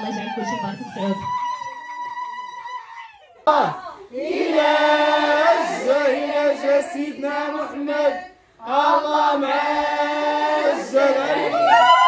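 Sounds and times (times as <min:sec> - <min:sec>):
voices singing long notes: 0:03.5 - 0:12.0.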